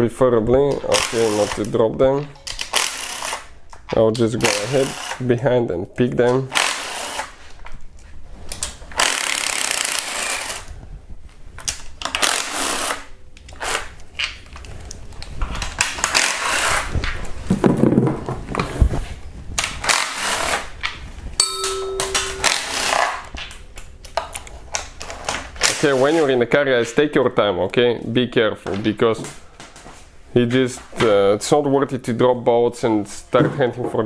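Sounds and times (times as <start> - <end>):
short ringing tone: 21.4 - 23.2.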